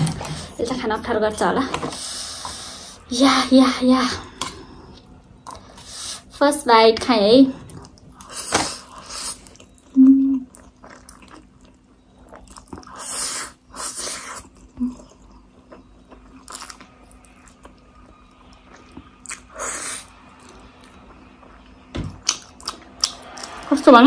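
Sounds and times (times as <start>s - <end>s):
chewing and mouth sounds: 7.6s - 13.1s, 14.2s - 21.5s, 22.2s - 23.7s.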